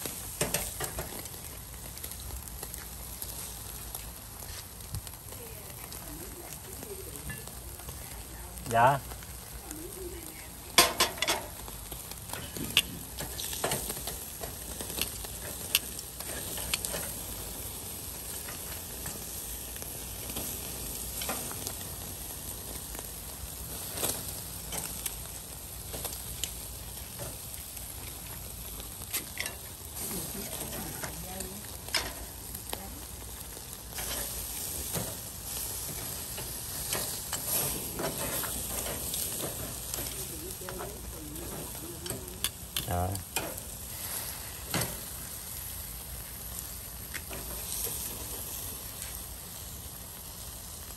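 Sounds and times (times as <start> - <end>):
fat popping and crackling: 0.0 - 49.5
meat sizzling on grill: 0.0 - 50.9.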